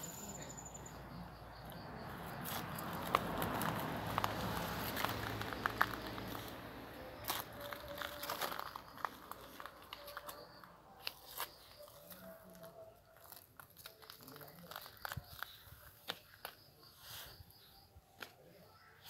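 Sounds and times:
footsteps on gravel: 0:02.4 - 0:16.4
small crackles and clicks: 0:07.2 - 0:16.6.

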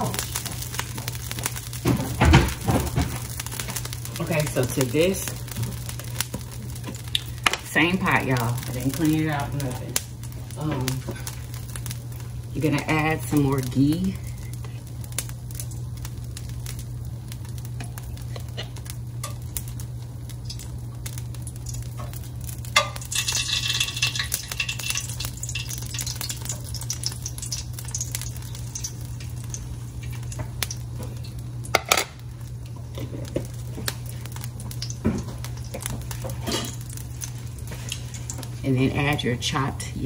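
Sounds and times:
ghee sizzling: 0:00.0 - 0:40.0
steady low hum: 0:00.0 - 0:40.0.

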